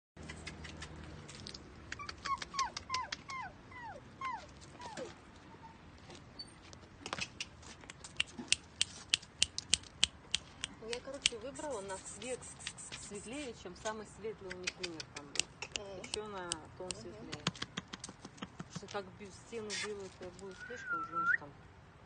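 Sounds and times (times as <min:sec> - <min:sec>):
young dog whimpering: 0:01.9 - 0:05.8
sharp clicks: 0:07.1 - 0:11.4.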